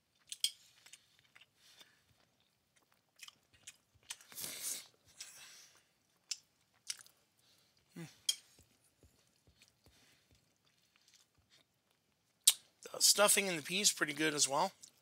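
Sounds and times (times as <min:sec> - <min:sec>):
person chewing food: 0:00.0 - 0:12.9, 0:14.8 - 0:15.0
small mouth clicks: 0:12.4 - 0:12.7.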